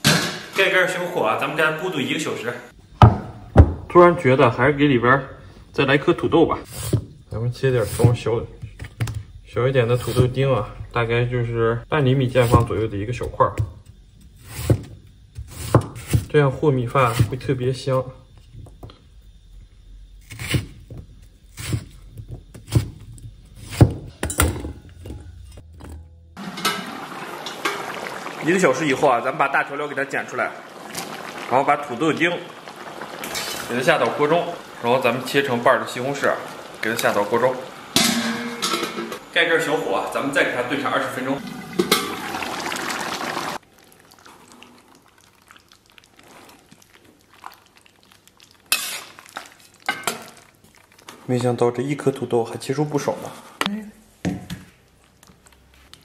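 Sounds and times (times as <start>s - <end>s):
stew bubbling in a pot: 26.4s - 39.0s, 40.2s - 53.0s
steady hiss: 26.5s - 42.8s.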